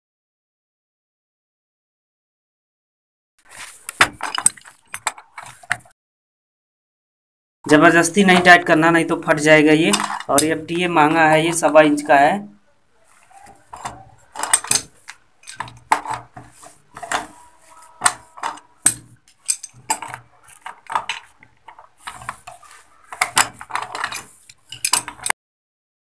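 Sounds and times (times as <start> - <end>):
metal wrench clinking on fitting: 13.8 - 16.2, 18.0 - 21.1, 23.2 - 25.3.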